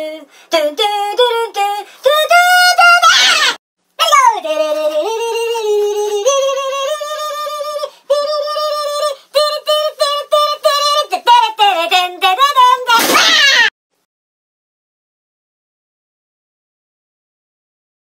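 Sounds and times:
high-pitched singing voice: 0:00.0 - 0:13.7
noisy cry: 0:03.0 - 0:04.3, 0:13.0 - 0:13.7.

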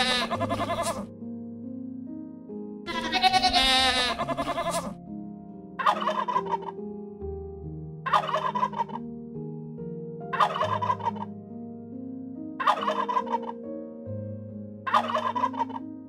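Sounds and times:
turkey gobbling: 0:00.0 - 0:01.0, 0:02.9 - 0:04.9, 0:05.8 - 0:06.7, 0:08.1 - 0:09.0, 0:10.4 - 0:11.3, 0:12.6 - 0:13.6, 0:14.9 - 0:15.8.

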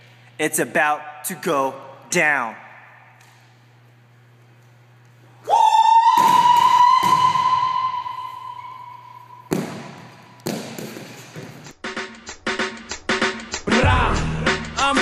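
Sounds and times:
faint hum: 0:00.0 - 0:10.5.

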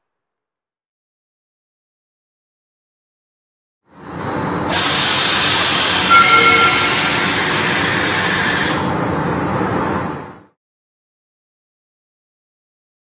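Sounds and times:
faint two-note tone: 0:06.1 - 0:07.2.

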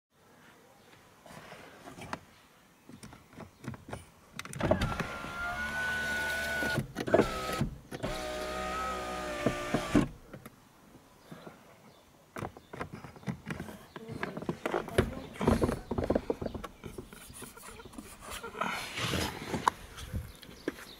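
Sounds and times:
electric window motor whining: 0:04.6 - 0:10.2.

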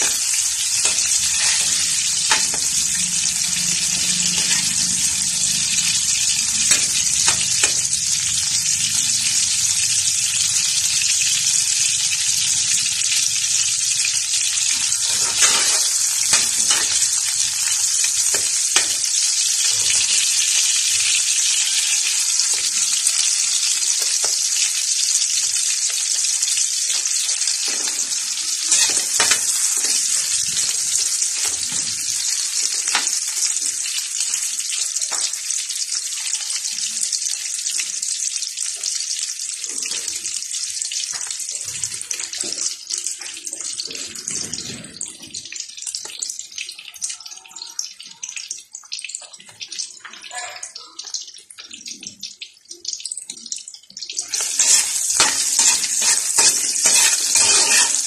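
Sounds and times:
metal spatula scraping a wok: 0:00.0 - 0:07.9, 0:14.7 - 0:19.2, 0:27.6 - 0:31.8, 0:54.3 - 0:58.0
food sizzling in hot oil: 0:00.0 - 0:58.0.

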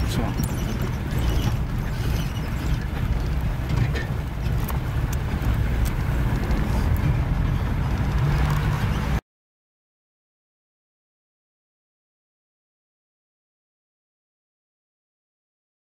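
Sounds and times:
car engine running: 0:00.0 - 0:09.2
tyres rumbling over dirt track: 0:00.0 - 0:09.2.

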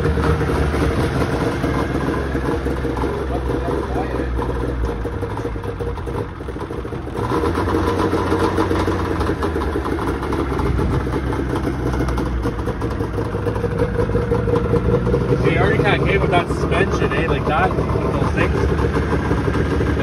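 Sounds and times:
snowmobile engine idling: 0:00.0 - 0:20.0.

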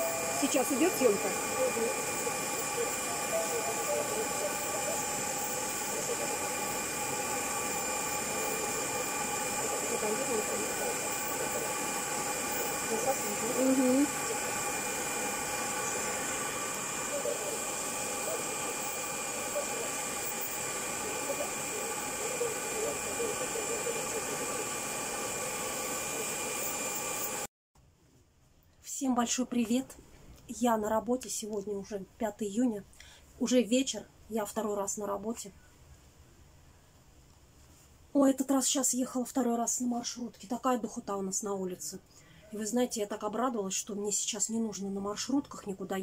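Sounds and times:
nail drill whining: 0:00.0 - 0:27.4
dust extractor fan running: 0:00.0 - 0:27.5.

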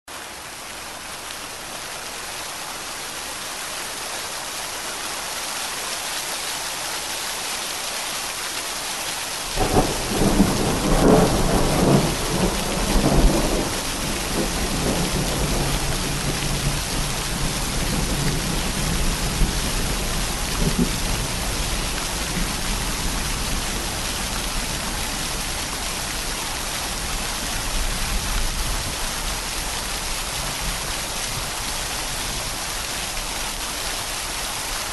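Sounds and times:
steady rain hiss: 0:00.1 - 0:34.9
thunder rolling: 0:09.6 - 0:21.3.

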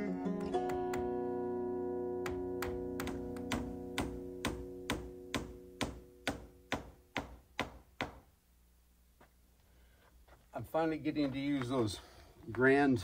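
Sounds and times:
acoustic guitar music: 0:00.0 - 0:07.1
hammer driving spikes into wood: 0:02.3 - 0:08.3.

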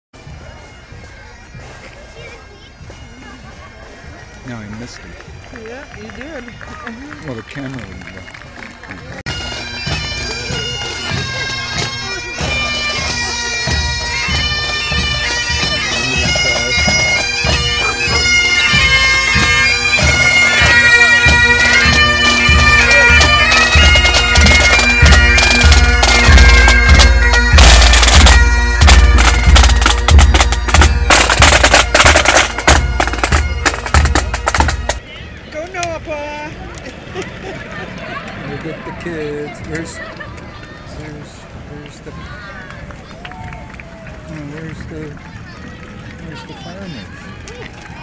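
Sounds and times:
bagpipes playing melody: 0:00.2 - 0:35.1
drums beating: 0:00.2 - 0:36.7.

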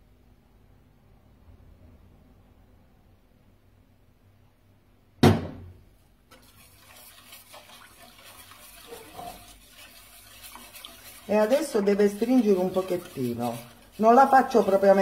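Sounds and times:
sharp knock: 0:05.2 - 0:05.8
sauce stirred in saucepan: 0:06.0 - 0:15.0.

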